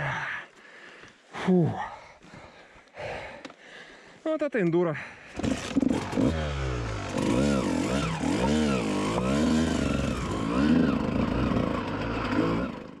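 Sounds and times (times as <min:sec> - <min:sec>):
dirt bike engine revving: 0:05.4 - 0:13.0.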